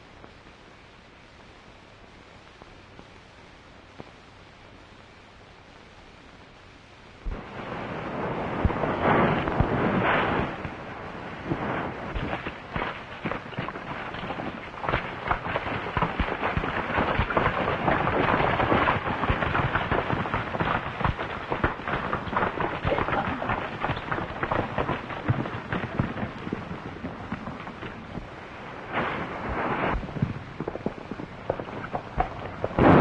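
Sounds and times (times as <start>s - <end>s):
horse hoofbeats on dirt: 12.1s - 28.3s, 30.0s - 33.0s.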